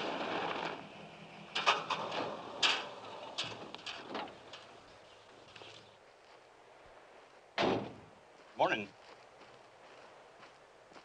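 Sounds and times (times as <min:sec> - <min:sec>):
truck engine running low: 0:00.0 - 0:05.5
sharp clicks and knocks: 0:01.5 - 0:04.8.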